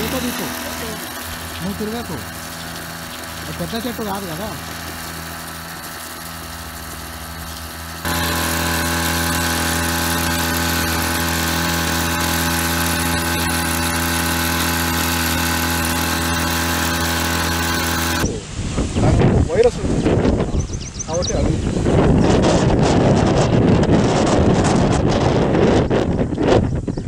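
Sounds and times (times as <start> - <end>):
sprayer pump engine running: 0.0 - 18.3.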